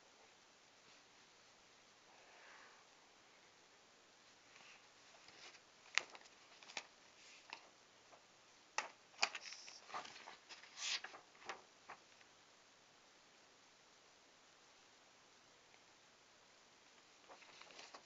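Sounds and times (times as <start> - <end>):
paper rustling and clicks: 4.6 - 8.2, 8.8 - 12.3, 17.2 - 18.0.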